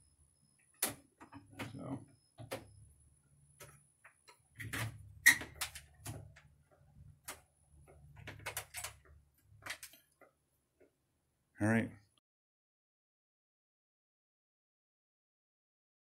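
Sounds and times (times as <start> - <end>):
door handle parts clicking: 7.2 - 10.0.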